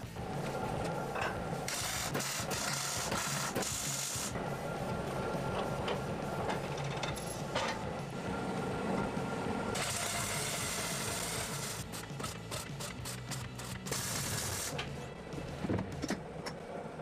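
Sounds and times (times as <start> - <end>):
welding arc crackling and hissing: 1.7 - 4.4, 9.8 - 14.8.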